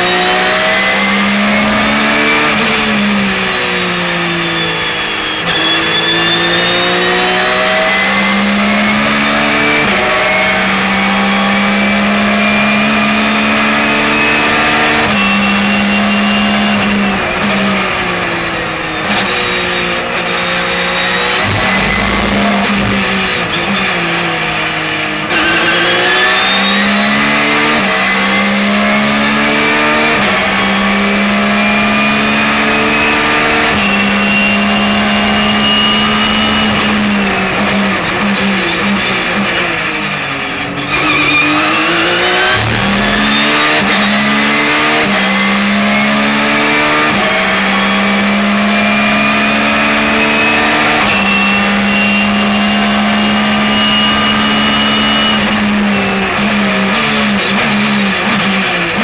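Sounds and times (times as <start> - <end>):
racing car engine shifting gears: 0.0 - 59.0.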